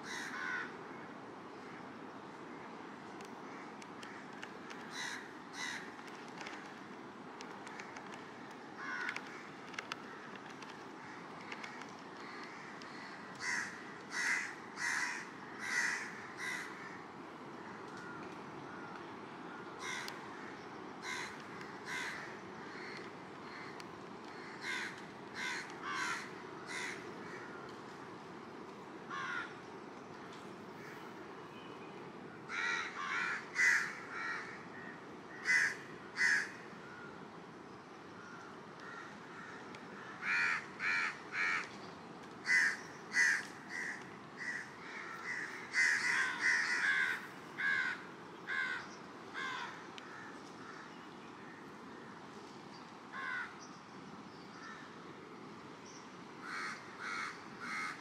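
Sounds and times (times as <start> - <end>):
crows cawing: 0.0 - 1.8, 3.4 - 6.7, 8.8 - 27.8, 29.1 - 29.6, 32.5 - 37.1, 38.2 - 41.8, 42.4 - 52.1, 53.1 - 53.6, 54.6 - 55.0, 56.4 - 58.0.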